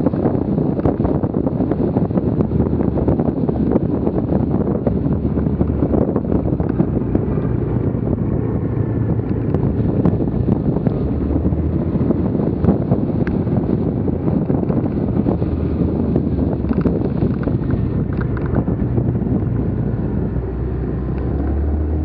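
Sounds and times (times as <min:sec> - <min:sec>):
road noise: 0:00.0 - 0:22.0
wind buffeting microphone: 0:00.0 - 0:22.0.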